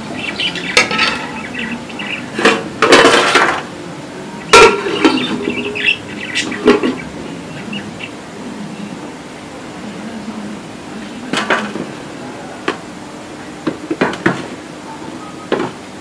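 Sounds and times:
metal cookware clanking: 0:00.6 - 0:03.7, 0:04.5 - 0:07.0.

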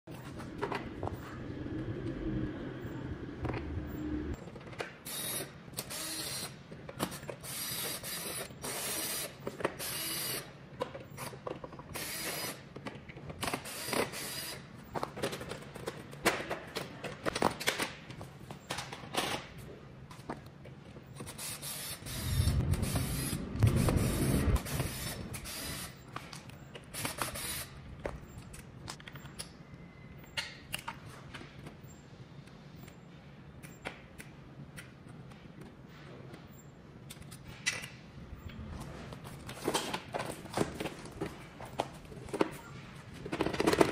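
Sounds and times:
plastic and metal parts rattling: 0:43.2 - 0:43.9.

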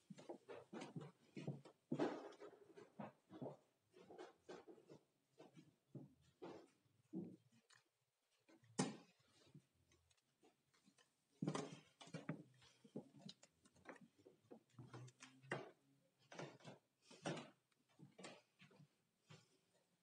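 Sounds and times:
faint knocks clicks and rustles: 0:00.0 - 0:20.0.

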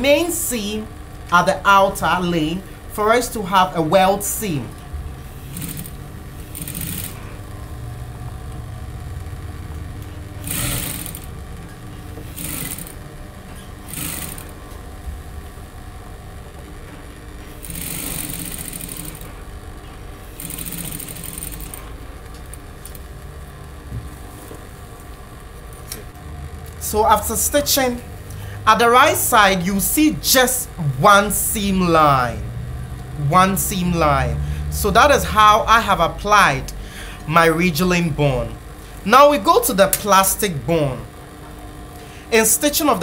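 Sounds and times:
sewing machine motor humming: 0:02.2 - 0:24.7
sewing machine stitching: 0:05.3 - 0:07.4, 0:10.4 - 0:11.4, 0:12.2 - 0:13.0, 0:13.6 - 0:14.7, 0:17.5 - 0:19.4, 0:20.2 - 0:22.6.

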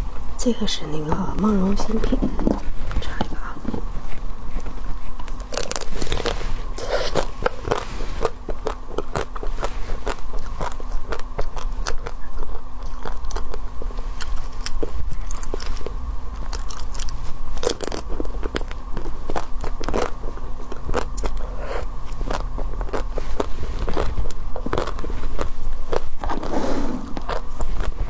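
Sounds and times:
chewing: 0:02.0 - 0:28.0
chocolate shell cracking and crunching: 0:05.1 - 0:06.4, 0:07.1 - 0:26.4.

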